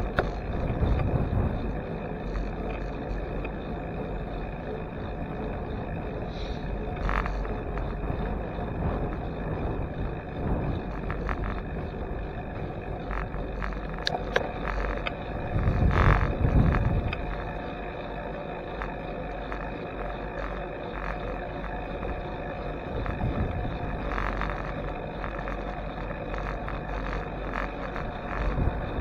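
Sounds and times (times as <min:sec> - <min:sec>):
wind on microphone: 0:00.0 - 0:03.5, 0:06.6 - 0:17.6, 0:22.8 - 0:29.0
bicycle tyres on asphalt: 0:00.0 - 0:29.0.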